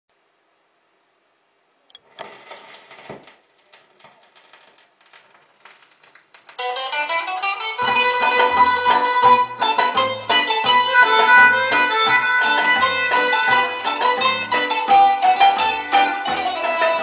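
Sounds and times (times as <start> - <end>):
vinyl crackle and pops: 1.9 - 9.8
bass line: 6.6 - 17.0
plucked string music: 6.6 - 17.0.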